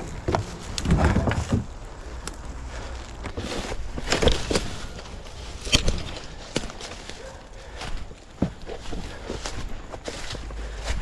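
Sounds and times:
footsteps and gear thumps: 3.2 - 11.0.

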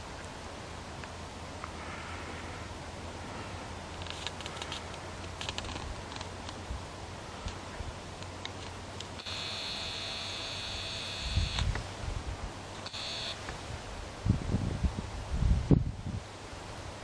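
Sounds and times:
faint hiss: 0.0 - 17.0
camcorder zoom motor whining: 9.2 - 11.7, 12.8 - 13.5
wind rumble on microphone: 11.2 - 12.7, 13.5 - 17.0.

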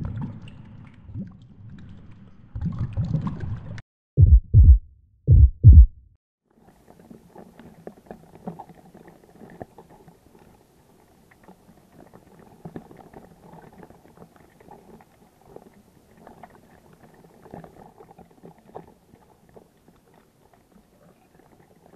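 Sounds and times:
low double thump: 4.2 - 6.0
underwater bubbling and crackling: 6.7 - 21.9.

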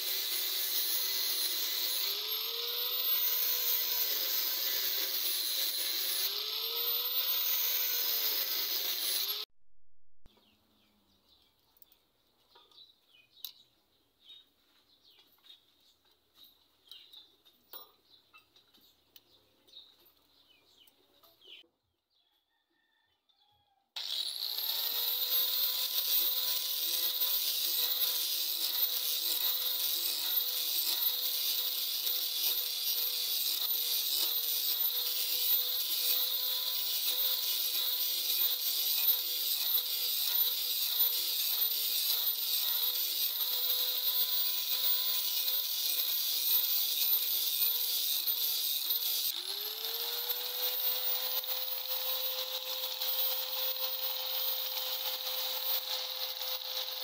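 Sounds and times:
angle grinder grinding steel: 0.0 - 9.5, 24.0 - 57.0.

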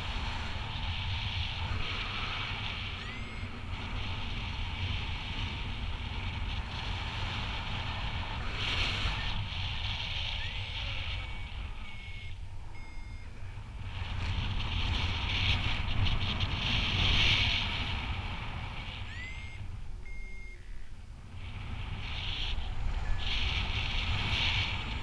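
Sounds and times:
wind buffeting microphone: 0.0 - 25.0
short electronic beeps: 2.9 - 3.6, 10.4 - 13.4, 19.0 - 20.9.

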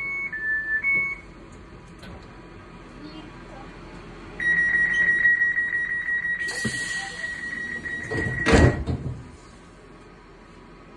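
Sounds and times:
rapid electronic warning beeps: 4.4 - 8.8
sliding door thud: 8.0 - 9.4.

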